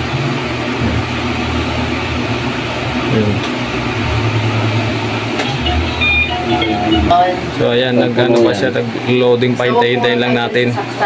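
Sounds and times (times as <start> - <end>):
machine hum with hiss: 0.0 - 11.0.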